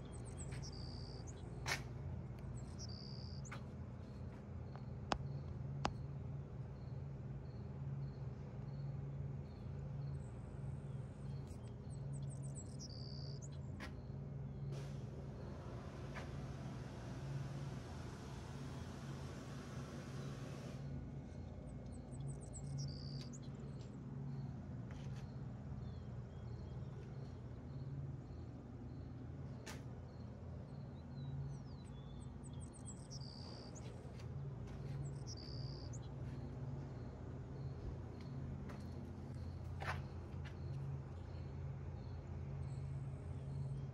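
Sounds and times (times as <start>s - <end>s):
low machine hum: 0.0s - 43.9s
birds chirping: 21.8s - 43.9s.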